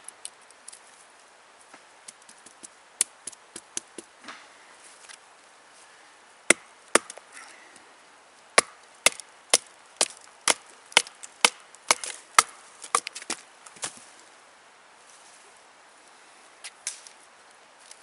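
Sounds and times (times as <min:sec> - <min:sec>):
sharp wooden knocks: 0:06.5 - 0:07.2, 0:08.6 - 0:13.4.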